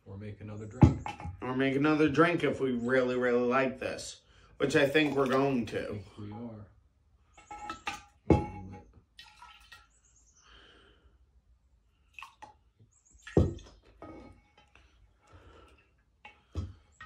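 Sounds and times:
liquid splashing and dripping: 0:09.1 - 0:10.1, 0:12.0 - 0:14.0
liquid pouring into a glass: 0:09.2 - 0:09.9.

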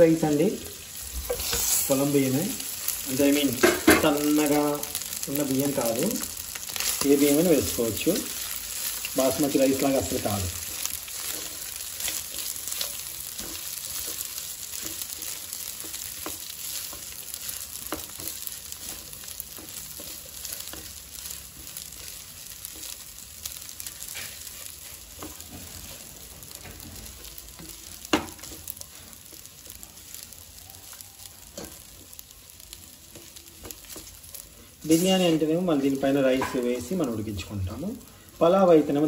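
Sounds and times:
food sizzling in a pan: 0:00.0 - 0:39.0
spatula scraping and tapping pan: 0:01.2 - 0:01.9, 0:03.4 - 0:04.5, 0:10.7 - 0:23.0, 0:23.8 - 0:29.5.

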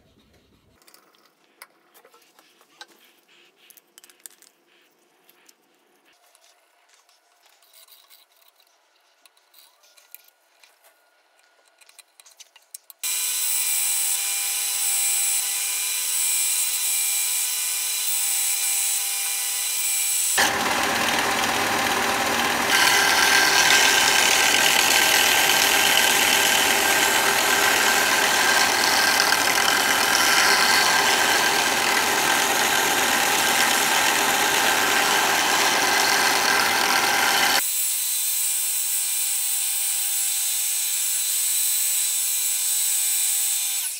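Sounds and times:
belt sander whine: 0:20.4 - 0:37.6
metal grinding on sanding belt: 0:20.4 - 0:37.6.

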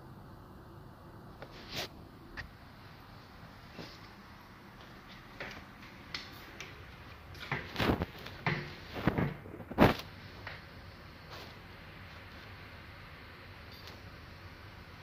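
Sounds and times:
objects knocking and scraping: 0:05.1 - 0:10.7.

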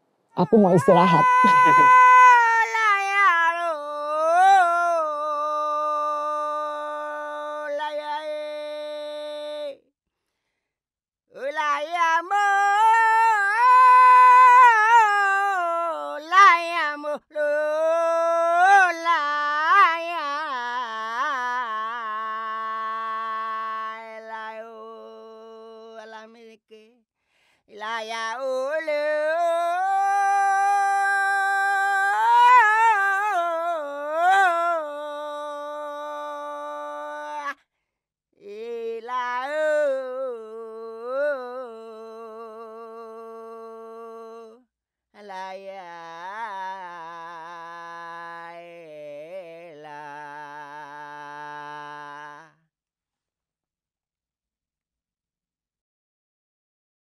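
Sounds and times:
person singing a long note: 0:00.4 - 0:02.5
woman singing: 0:00.4 - 0:09.8, 0:11.4 - 0:26.9, 0:27.8 - 0:37.6, 0:38.4 - 0:44.6, 0:45.2 - 0:52.5.

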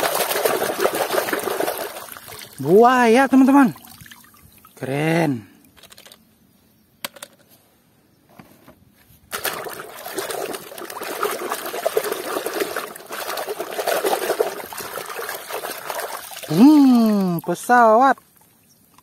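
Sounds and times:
water splashing in a basin: 0:00.0 - 0:04.8, 0:09.3 - 0:19.0.

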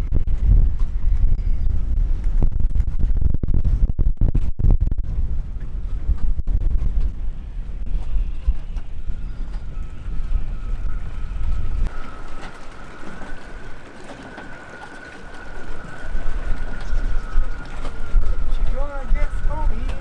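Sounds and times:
gusty wind buffeting microphone: 0:00.0 - 0:20.0
thin steady whistle: 0:08.1 - 0:18.4.

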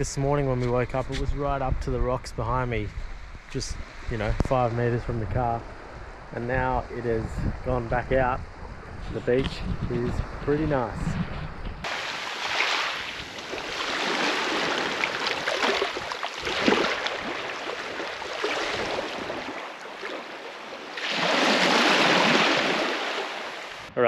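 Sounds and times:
small waves washing on beach: 0:11.8 - 0:23.9.

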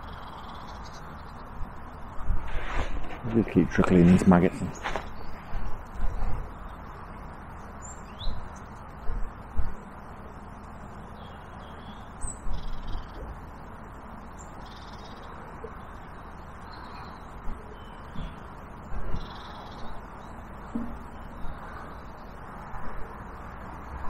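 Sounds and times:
steady background hiss: 0:00.0 - 0:24.0.

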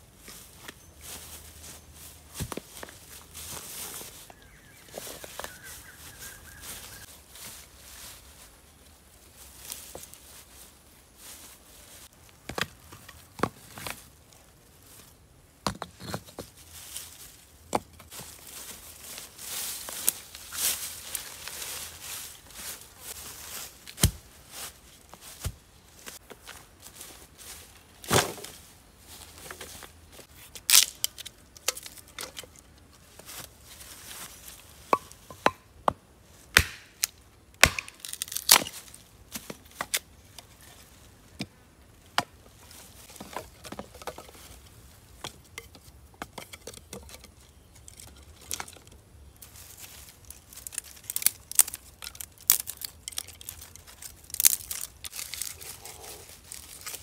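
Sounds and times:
sticks and bark clattering: 0:27.4 - 0:36.0, 0:42.1 - 0:57.0
dry sticks cracking and snapping: 0:30.5 - 0:32.8, 0:36.5 - 0:40.5, 0:46.4 - 0:57.0.

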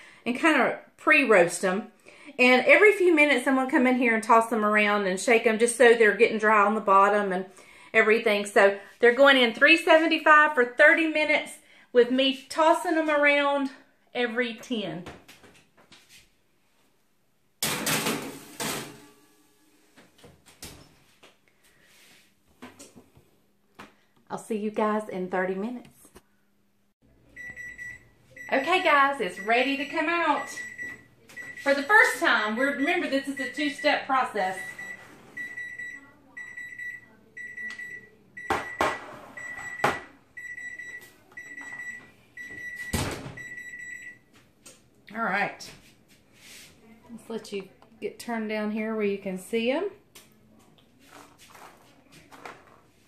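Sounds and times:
oven timer beeping: 0:27.4 - 0:44.3.

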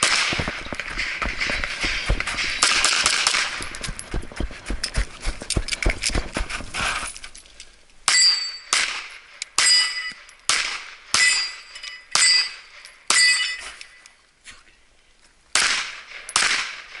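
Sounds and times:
pistol shots: 0:00.0 - 0:04.0, 0:08.1 - 0:09.9, 0:10.5 - 0:11.6, 0:15.6 - 0:17.0
metallic ringing of steel targets: 0:00.0 - 0:04.2, 0:08.1 - 0:14.2.

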